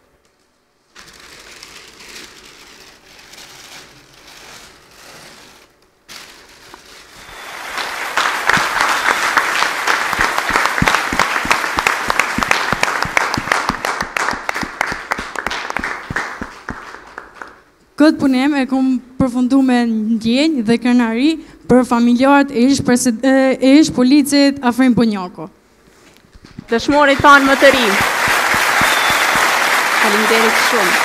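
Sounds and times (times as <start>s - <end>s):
paper rustling and tearing: 0.9s - 7.5s
audience applause: 7.2s - 17.6s, 27.0s - 31.0s.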